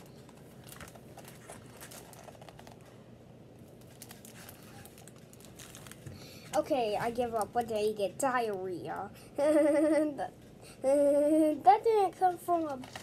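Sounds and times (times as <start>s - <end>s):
book pages turning: 0.1s - 2.9s.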